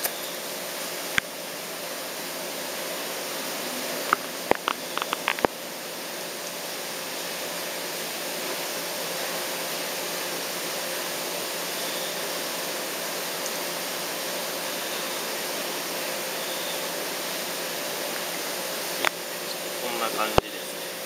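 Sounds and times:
steady background hiss: 0.0 - 21.0.

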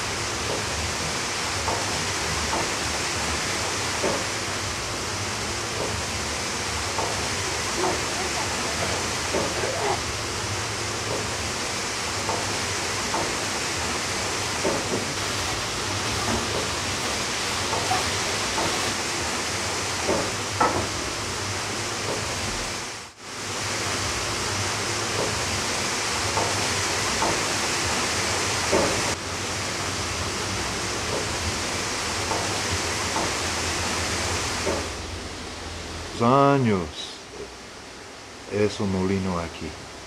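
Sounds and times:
running water rushing: 0.0 - 20.2.

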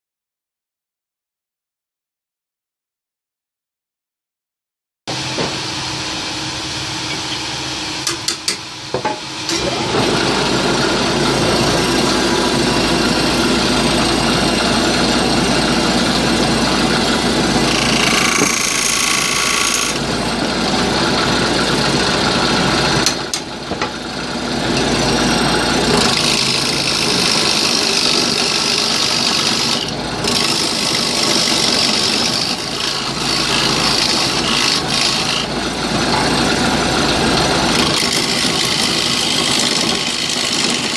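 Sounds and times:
lathe motor hum: 9.0 - 40.9
turning tool scraping wood: 16.0 - 20.0, 25.8 - 37.0, 37.7 - 40.9.

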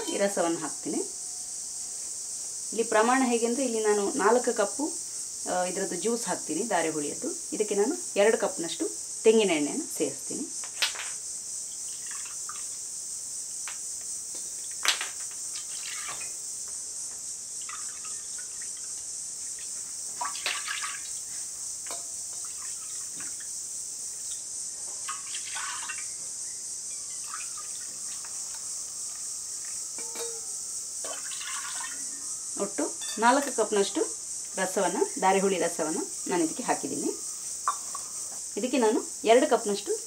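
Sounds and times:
insect chirring: 0.0 - 40.0
liquid splashing: 17.6 - 21.2, 25.0 - 26.1, 31.1 - 32.0
steel cup clinking: 27.0 - 31.8, 33.0 - 33.6.

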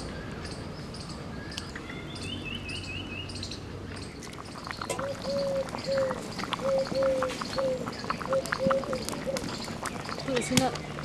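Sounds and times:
birds chirping: 0.0 - 11.0
low bird hooting: 5.0 - 9.5.

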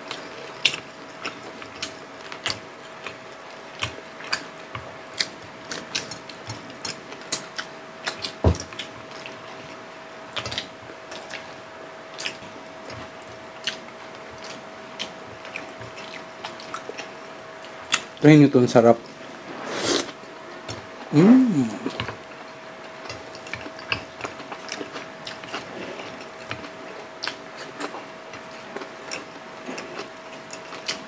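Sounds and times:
faint steady hum: 0.0 - 31.0
chewing and mouth clicks: 0.1 - 9.6, 10.3 - 11.5, 12.1 - 18.2, 22.9 - 31.0
fingers clicking at food: 10.3 - 11.5.

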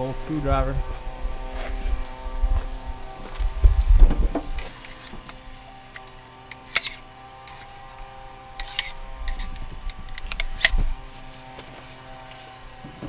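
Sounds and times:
screwdriver scraping and clicking: 3.0 - 13.0.

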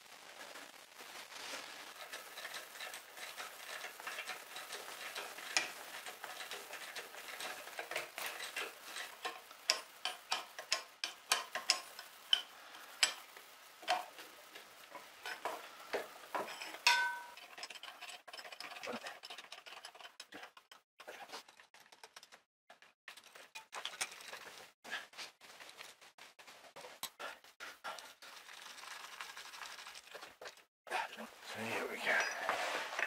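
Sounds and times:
spanner scraping metal: 1.9 - 20.8
spanner clicking on metal: 2.0 - 14.2.

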